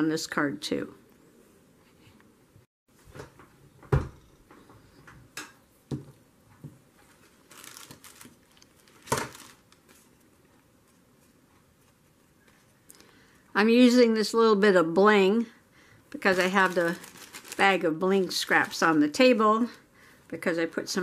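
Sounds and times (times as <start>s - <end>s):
plastic bag crinkling: 7.0s - 10.6s, 16.2s - 19.8s.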